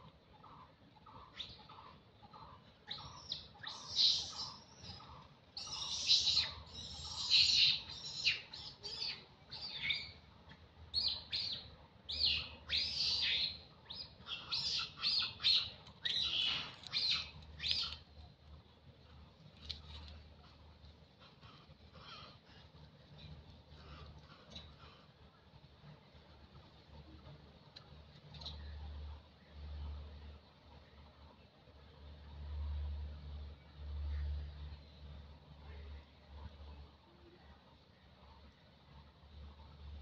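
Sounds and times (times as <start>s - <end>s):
birds chirping rapidly: 0.4s - 10.3s, 10.9s - 18.1s.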